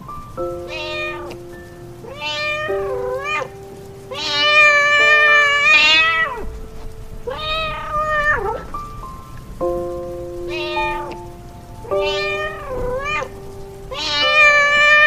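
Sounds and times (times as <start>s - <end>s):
background music with held notes: 0.0s - 15.0s
cat meowing: 0.6s - 1.4s, 2.0s - 6.6s, 7.3s - 8.8s, 10.4s - 15.0s.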